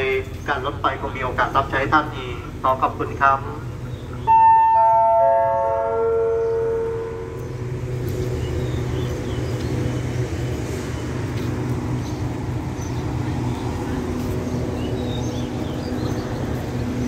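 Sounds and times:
train engine humming: 0.0 - 17.0
descending public address chime: 4.2 - 7.4.

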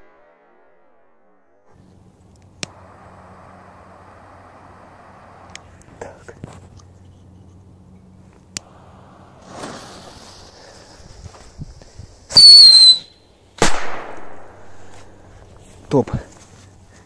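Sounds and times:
fuse hissing: 2.6 - 6.1, 8.5 - 13.2
shrill firecracker whistle: 12.3 - 13.2
firecracker bang: 13.6 - 14.7.

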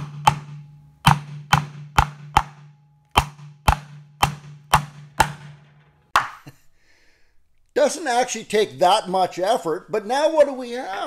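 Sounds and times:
sharp knocks on metal bushing: 0.0 - 6.4.

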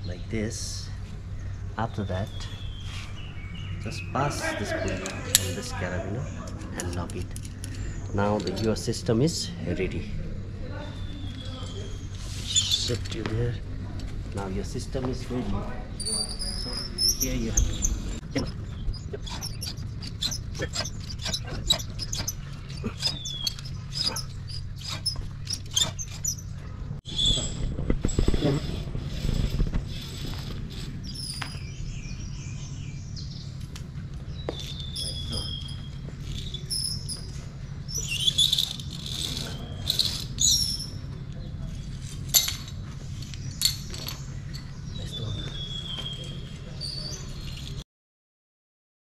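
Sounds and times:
low hum: 0.0 - 45.6
rope squeaking through pulleys: 11.5 - 13.2, 16.0 - 31.7, 34.4 - 47.8.

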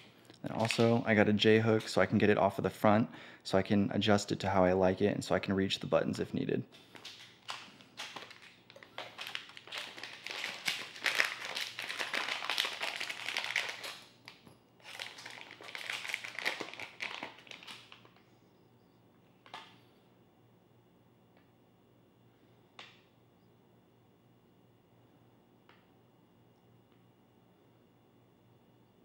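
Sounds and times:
plastic bag crinkling: 0.0 - 1.2, 6.8 - 18.2.

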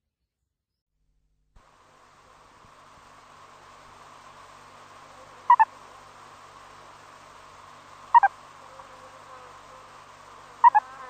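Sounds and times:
faint steady hiss: 1.6 - 11.0
meerkat two-note calls: 5.5 - 5.7, 8.1 - 8.3, 10.6 - 10.9.

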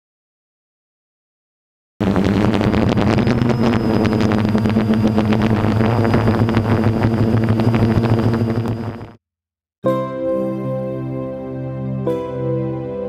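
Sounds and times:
wind noise: 2.0 - 9.1
drone propellers buzzing: 2.0 - 9.2.

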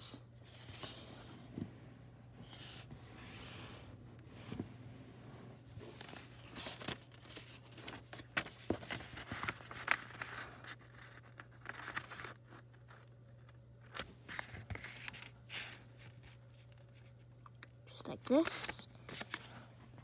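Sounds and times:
paper rustling and crinkling: 0.4 - 1.3, 2.4 - 3.4, 5.6 - 17.3, 18.3 - 20.0.

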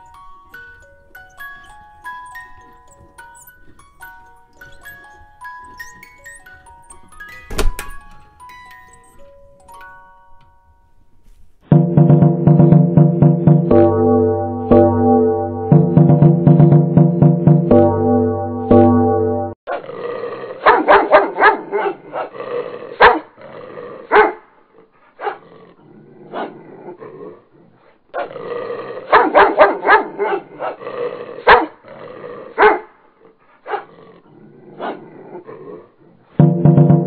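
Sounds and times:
dog barking: 20.6 - 22.4, 23.0 - 23.3, 24.1 - 24.5, 25.2 - 25.4, 26.3 - 26.6, 29.1 - 30.8, 31.4 - 31.8, 32.6 - 33.0, 33.6 - 33.9, 34.8 - 35.0.

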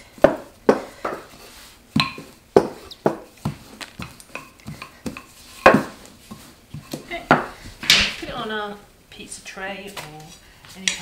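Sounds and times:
rolling pin knocking and rolling: 1.9 - 8.3.

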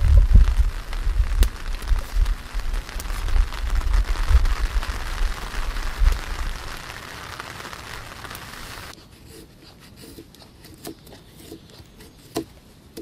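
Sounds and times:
steady hiss: 0.0 - 9.0
knife shaving wood: 8.9 - 13.0.

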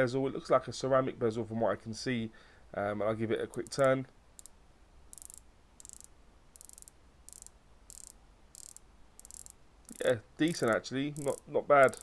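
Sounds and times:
watch bezel ratcheting clicks: 3.6 - 12.0.

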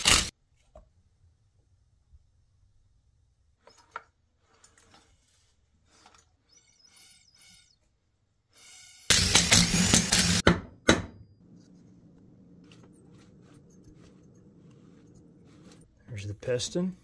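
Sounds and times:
cordless impact driver running: 8.6 - 10.4.

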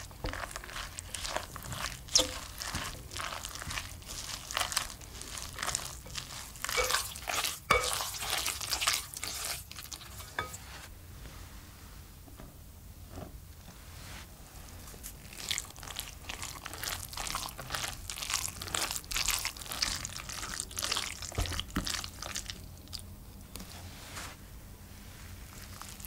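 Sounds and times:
spoon stirring wet shredded vegetables: 0.0 - 10.9, 14.8 - 23.8, 25.4 - 26.0.

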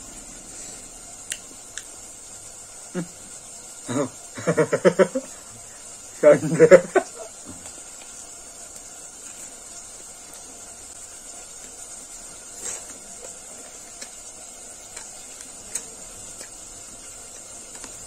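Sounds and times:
steady hiss: 0.0 - 18.0
chewing crunches and clicks: 12.7 - 18.0.

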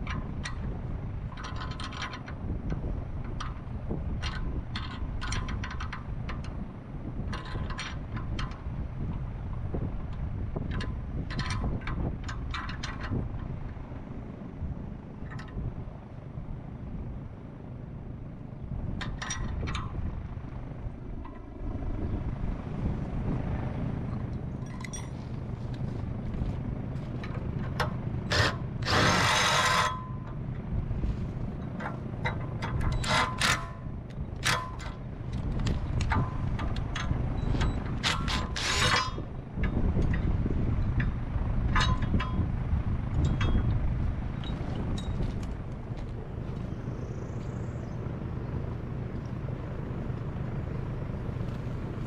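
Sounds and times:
light metal rattle: 0.0 - 6.6, 7.2 - 13.9, 24.1 - 46.0
wind rumbling on microphone: 0.0 - 52.0
metallic tool clicks and clanks: 1.3 - 3.6, 24.6 - 25.2, 27.2 - 30.6, 31.6 - 42.4
sharp metallic clinks: 24.6 - 25.3.

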